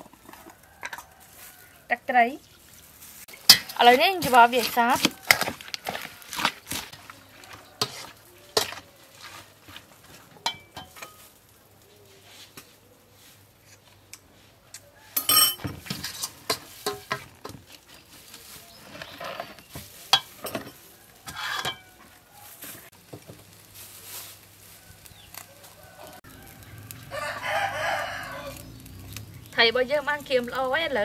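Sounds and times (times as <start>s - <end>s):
wooden spoon scraping metal bowl: 2.5s - 11.3s, 15.3s - 22.9s
rooster crowing: 24.8s - 28.9s.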